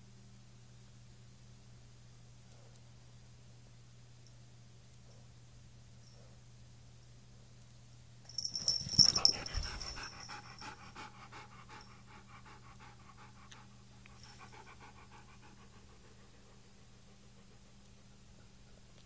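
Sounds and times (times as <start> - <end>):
dog panting quickly: 8.8 - 19.0.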